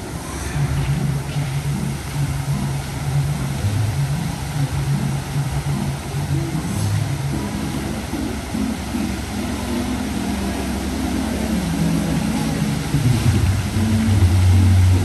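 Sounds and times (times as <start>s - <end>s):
hiss of spraying fountains: 0.0s - 15.0s
music with low bass line: 0.0s - 15.0s.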